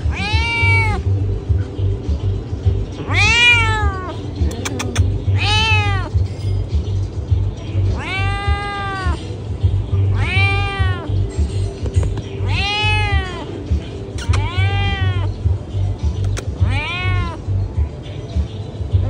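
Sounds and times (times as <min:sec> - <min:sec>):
cat meowing loudly: 0:00.0 - 0:01.1, 0:03.0 - 0:04.2, 0:05.3 - 0:06.2, 0:07.9 - 0:09.3, 0:10.0 - 0:11.2, 0:12.4 - 0:13.6, 0:14.2 - 0:15.4, 0:16.4 - 0:17.6
background music with low beat: 0:00.0 - 0:19.0.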